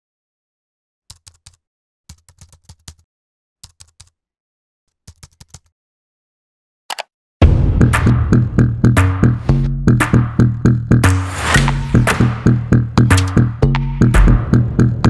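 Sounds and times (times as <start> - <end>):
keyboard typing: 1.1 - 3.0, 3.6 - 4.2, 4.9 - 5.7.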